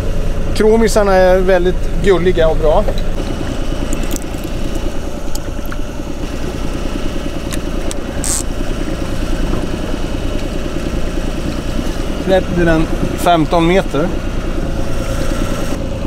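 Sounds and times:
boat engine running: 0:00.0 - 0:16.0
fishing reel clicks: 0:07.5 - 0:08.5.

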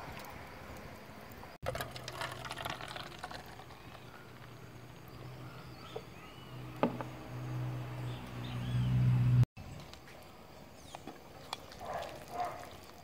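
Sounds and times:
beer poured fizzing: 0:01.6 - 0:05.2
can set down knock: 0:06.8 - 0:07.1.

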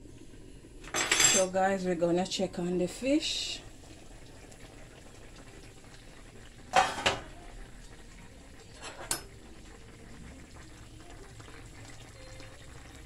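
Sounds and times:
pan simmering: 0:00.0 - 0:13.0
metal pot lid clanking: 0:06.7 - 0:07.3, 0:08.8 - 0:09.3.

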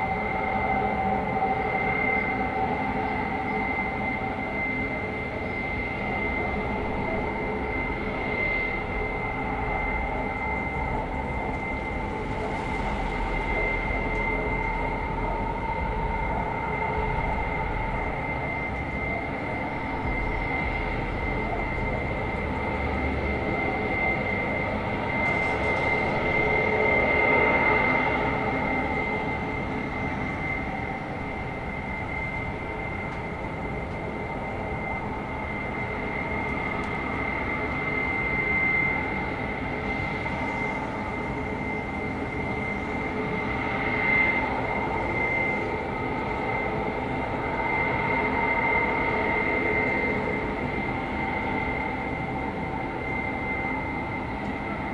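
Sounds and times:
high-pitched whine: 0:00.0 - 0:54.9
low hum: 0:05.2 - 0:47.5.

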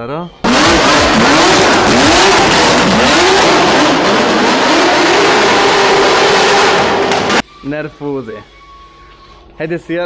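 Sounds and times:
car engine revving: 0:00.4 - 0:07.4.

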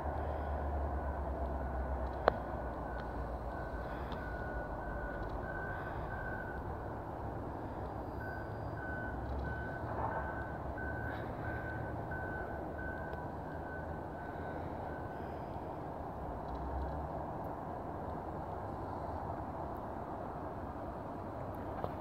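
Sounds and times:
vehicle backup alarm beeping: 0:00.9 - 0:15.6.

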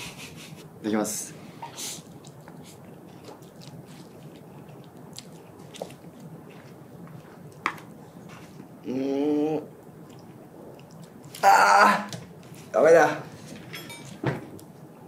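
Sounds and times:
person chewing noodles: 0:01.8 - 0:08.8, 0:09.7 - 0:11.4.

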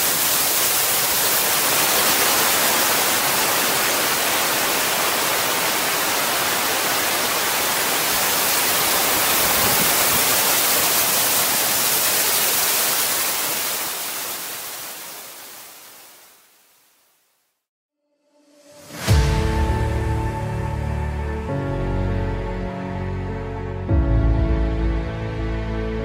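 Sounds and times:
waterfall rushing: 0:00.0 - 0:16.8.

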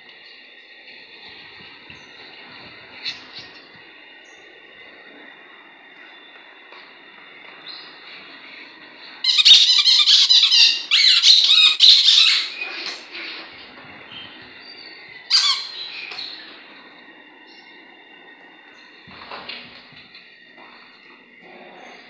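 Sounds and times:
squeaky toy ball squeaking: 0:09.3 - 0:13.0, 0:15.3 - 0:15.8.

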